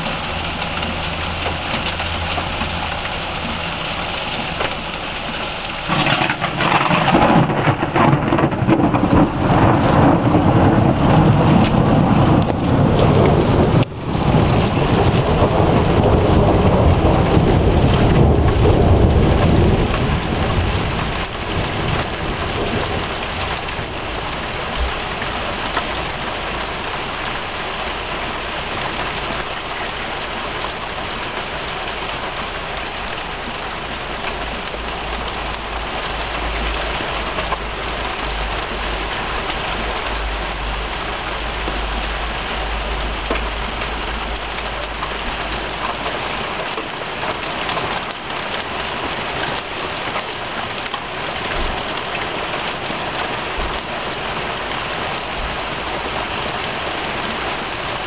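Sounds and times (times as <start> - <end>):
heavy rain falling: 0.0 - 58.0
low rumble of thunder: 5.8 - 27.0.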